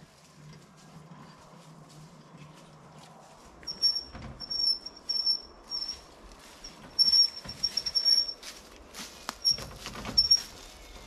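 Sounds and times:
rustling footsteps: 0.0s - 11.0s
wheelbarrow wheel squeaking: 3.6s - 11.0s.

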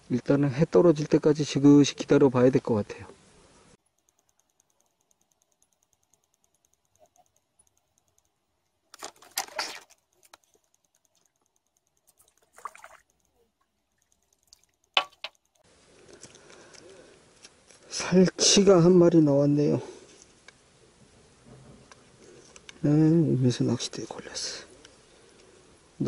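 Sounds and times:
sharp click: 3.8s - 13.4s
fishing rod rustling: 8.8s - 17.9s
water splashing: 9.0s - 10.3s, 12.1s - 13.4s.

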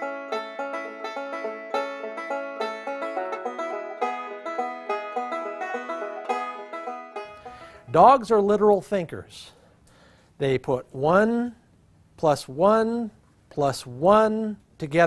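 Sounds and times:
plucked string instrument tune: 0.0s - 8.1s.

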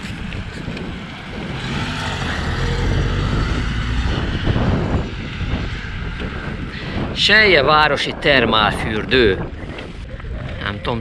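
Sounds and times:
vehicle passing: 0.0s - 7.2s
road noise: 0.0s - 11.0s
wind rumbling on microphone: 0.0s - 11.0s.

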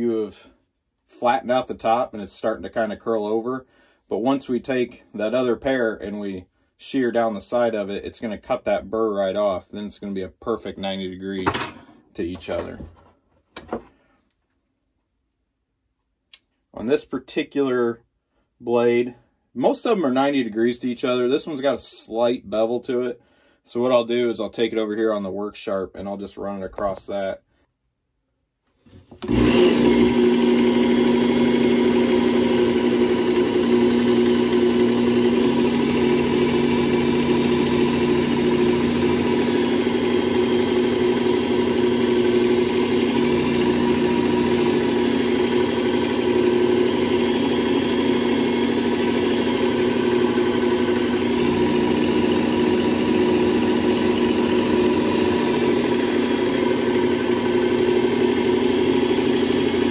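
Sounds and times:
belt sharpener motor hum: 29.2s - 59.9s.

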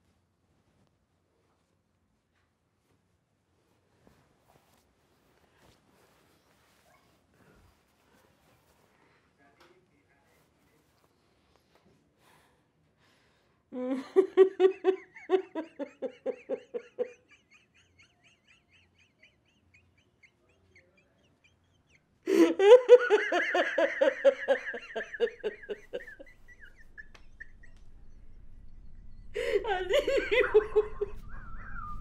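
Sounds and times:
man sobbing into cloth: 18.1s - 26.3s.

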